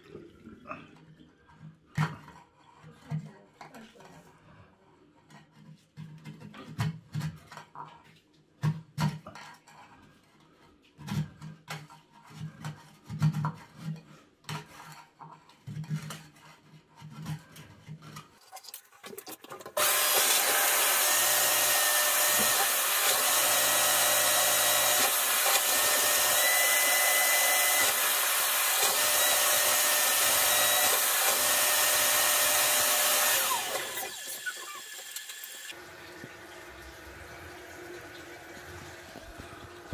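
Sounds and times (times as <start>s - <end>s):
suction machine rushing: 19.8s - 35.7s.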